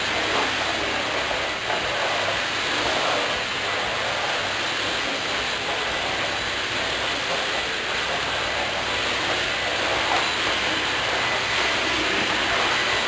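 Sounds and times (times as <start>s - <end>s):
vacuum cleaner running: 0.0s - 13.0s.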